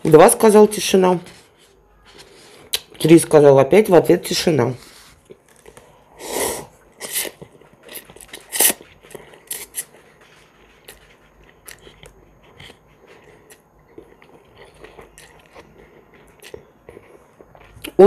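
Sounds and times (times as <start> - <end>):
person slurping noodles: 6.1 - 9.9
wet chewing clicks and smacks: 10.8 - 18.0.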